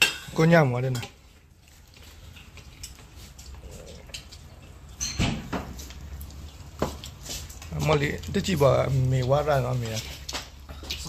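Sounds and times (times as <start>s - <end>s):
spoons clinking on ceramic bowls: 0.0s - 1.2s.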